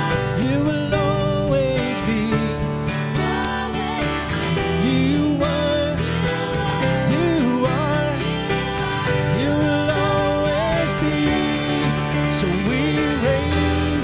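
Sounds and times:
acoustic guitars and keyboard: 0.0s - 14.0s
person singing: 0.0s - 14.0s.

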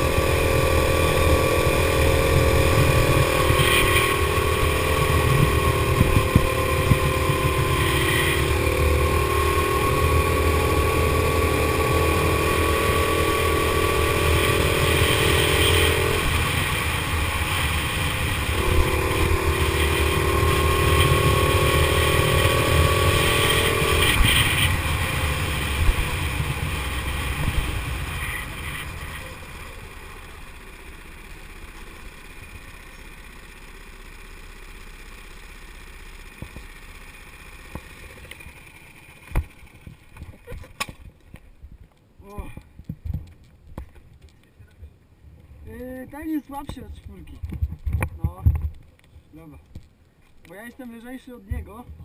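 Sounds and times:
go-kart engine buzzing: 0.0s - 41.1s.

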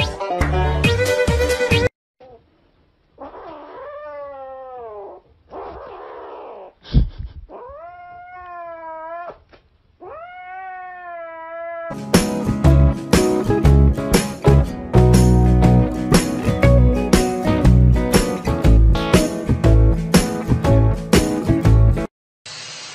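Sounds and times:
kitten yowling: 3.2s - 6.7s, 7.5s - 9.4s, 10.0s - 11.9s.

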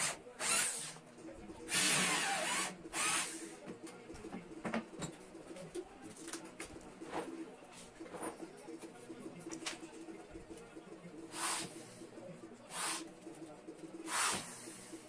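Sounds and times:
power drill whine: 1.7s - 3.3s.

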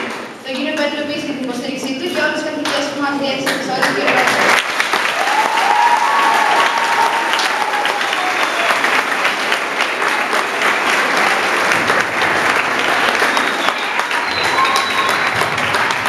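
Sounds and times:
audience applauding: 3.8s - 16.0s.

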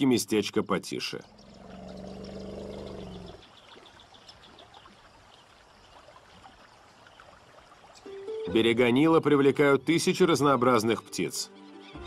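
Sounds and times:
river water trickling and splashing: 0.0s - 12.0s
hippopotamus grunting: 1.2s - 3.4s.

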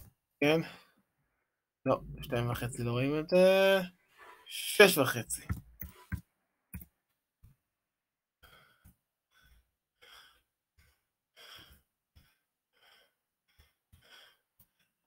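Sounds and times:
soft breaths: 8.4s - 15.0s.

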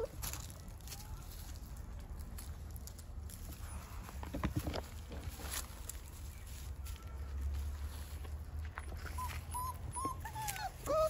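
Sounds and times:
puppies whimpering: 0.0s - 0.2s, 9.0s - 11.0s.

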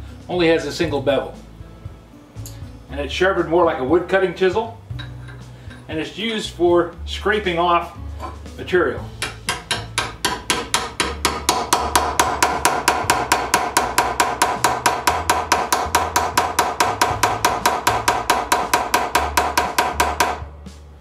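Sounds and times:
hammer striking chisel on steel: 8.2s - 20.5s.

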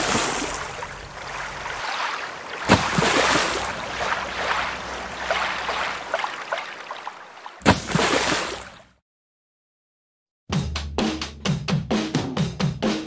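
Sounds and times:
crackling water droplets: 0.0s - 8.8s
water rushing and splashing: 0.0s - 8.9s.

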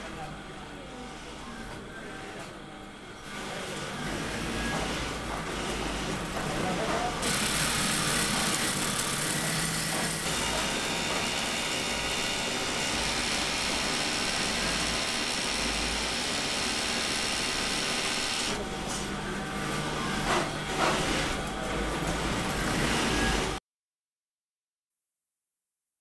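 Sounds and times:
sewing machines whirring: 3.2s - 18.8s, 19.4s - 23.6s.

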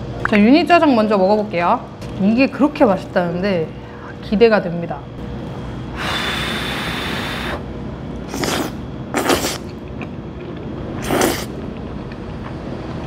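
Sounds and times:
person slurping noodles: 6.0s - 7.6s, 8.3s - 9.8s, 11.0s - 11.6s.

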